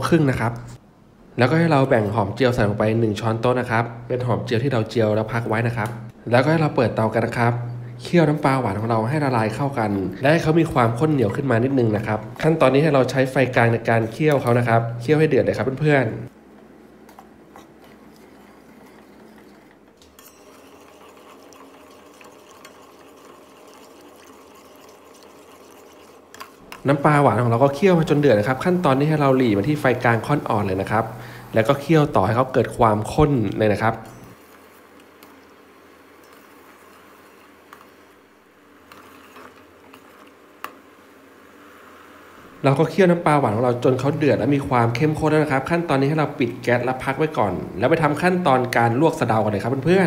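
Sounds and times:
syrup bubbling in a pot: 0:17.5 - 0:33.9
ladle scraping a pot: 0:20.2 - 0:26.9, 0:38.9 - 0:40.3.

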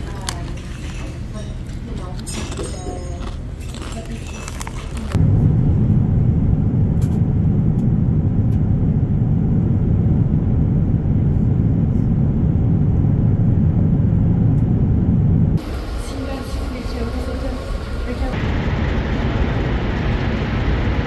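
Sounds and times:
vehicle rumble: 0:04.6 - 0:21.0.

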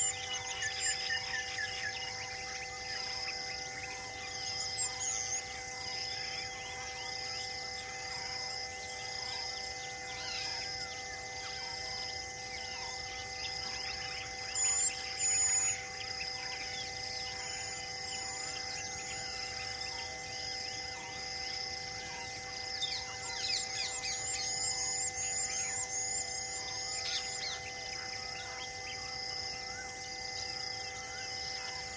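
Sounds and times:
birds calling and chirping: 0:00.0 - 0:31.9.

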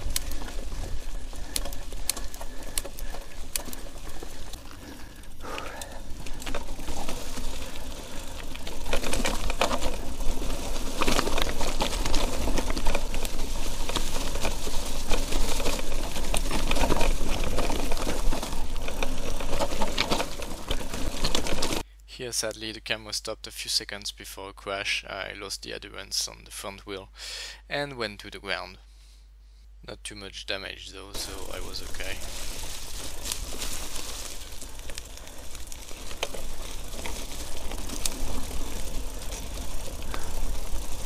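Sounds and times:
bike rattling and clicking: 0:00.0 - 0:21.8, 0:31.2 - 0:41.0.

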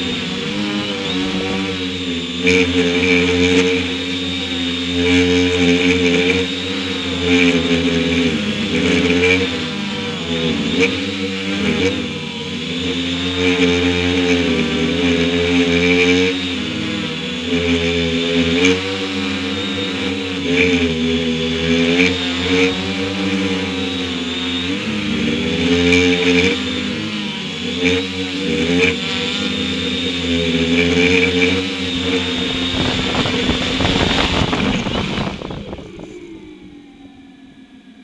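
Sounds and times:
drone motors and propellers whining: 0:00.0 - 0:38.0
motors spinning down: 0:00.0 - 0:38.0
rough rushing noise: 0:30.8 - 0:36.6.

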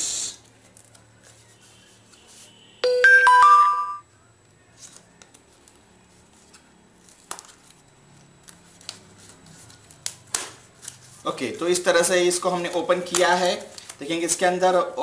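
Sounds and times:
electronic notification chime: 0:02.8 - 0:04.0.

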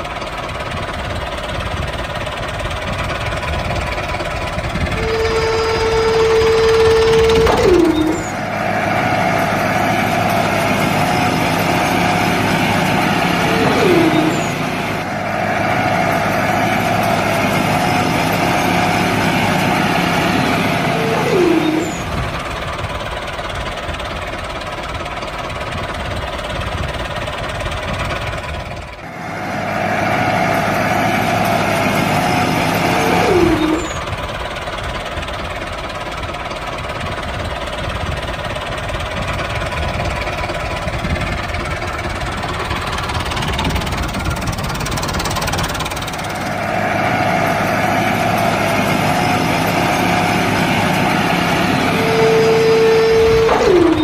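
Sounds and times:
tractor engine running: 0:00.0 - 0:54.0
short falling squeal: 0:05.0 - 0:16.9, 0:17.7 - 0:22.4, 0:32.2 - 0:34.1, 0:49.0 - 0:54.0.

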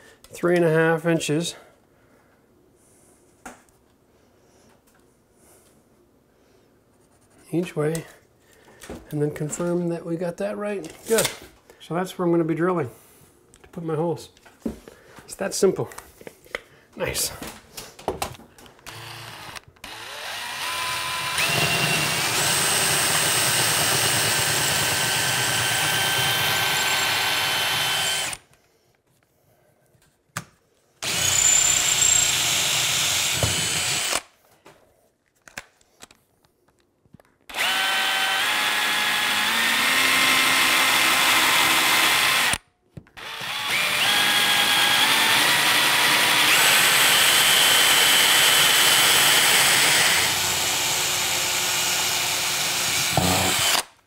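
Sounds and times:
cordless drill boring through tile: 0:18.8 - 0:28.5, 0:31.0 - 0:34.3, 0:37.5 - 0:42.6, 0:43.2 - 0:53.9.

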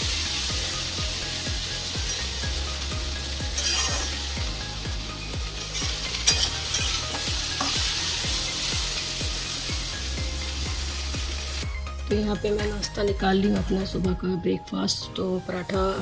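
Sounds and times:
okra sizzling in a pan: 0:00.0 - 0:12.9
metal spatula scraping a pan: 0:03.5 - 0:04.3, 0:05.6 - 0:07.9
spatula clinking on pan: 0:03.6 - 0:04.1, 0:05.8 - 0:07.8.

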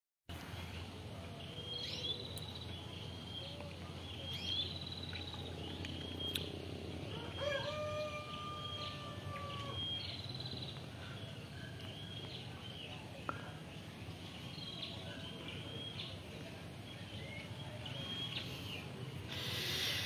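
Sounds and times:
small birds singing: 0:00.3 - 0:20.0
rooster crowing: 0:07.1 - 0:10.0.

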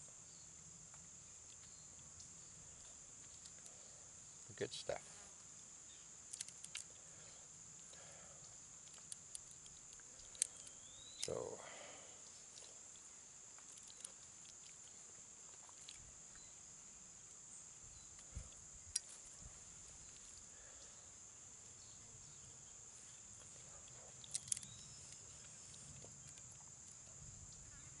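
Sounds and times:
insects droning: 0:00.0 - 0:28.0
nut shell clicks: 0:24.2 - 0:24.9.

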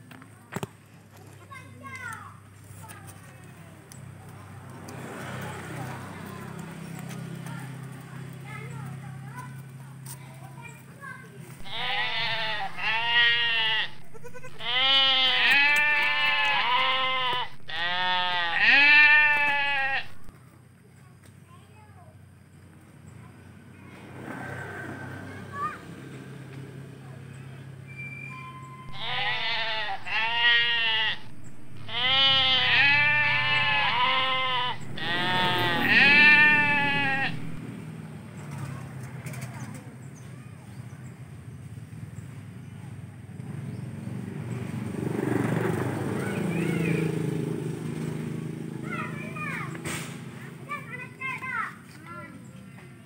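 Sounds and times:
goat kids bleating: 0:11.6 - 0:20.3, 0:28.9 - 0:37.6.

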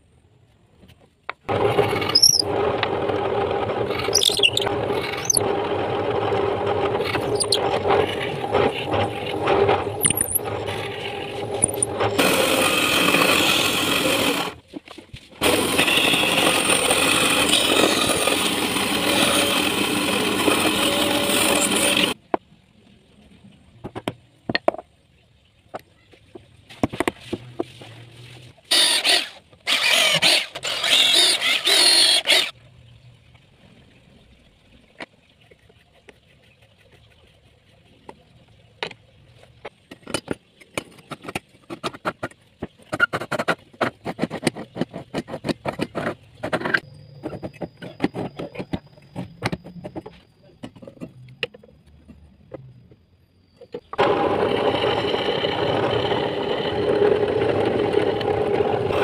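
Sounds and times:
power saw cutting wood: 0:01.5 - 0:14.6, 0:15.4 - 0:22.2, 0:28.7 - 0:32.6, 0:54.0 - 0:59.0.

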